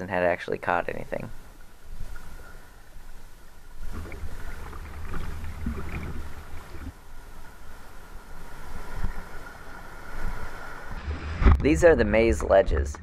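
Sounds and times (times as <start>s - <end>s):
wind rumbling on microphone: 3.7s - 13.0s
paddle splashes: 3.8s - 11.6s.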